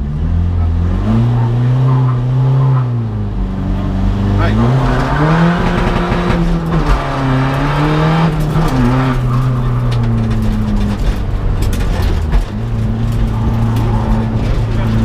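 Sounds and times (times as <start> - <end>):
car engine running hard: 0.0 - 15.0.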